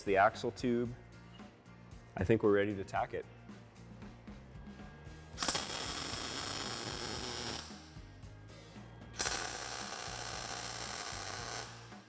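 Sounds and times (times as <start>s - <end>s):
welding arc crackle: 5.4s - 7.9s, 9.2s - 12.0s.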